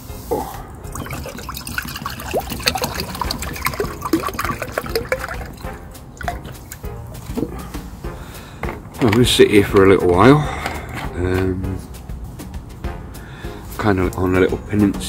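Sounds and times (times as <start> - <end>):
coffee pouring into a cup: 0.9 - 6.8.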